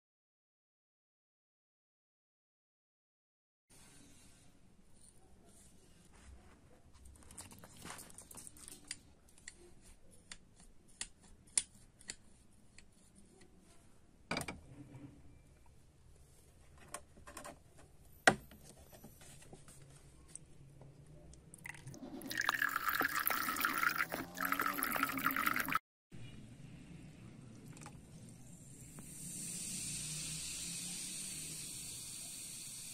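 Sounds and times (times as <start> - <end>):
liquid pouring and splashing: 21.6 - 25.8.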